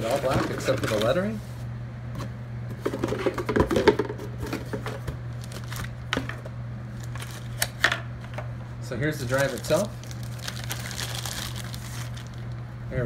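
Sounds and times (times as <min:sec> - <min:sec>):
steady low hum: 0:00.0 - 0:13.0
cardboard and plastic packaging rustling: 0:02.9 - 0:07.8, 0:09.2 - 0:12.6.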